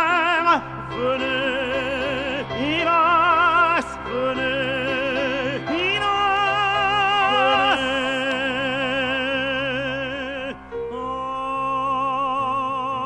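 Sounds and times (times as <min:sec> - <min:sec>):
man singing opera: 0:00.0 - 0:13.0.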